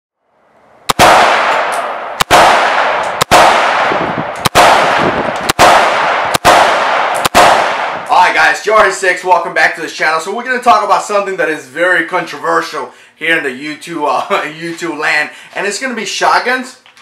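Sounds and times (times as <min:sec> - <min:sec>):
rifle shots with echo: 0:00.9 - 0:08.1.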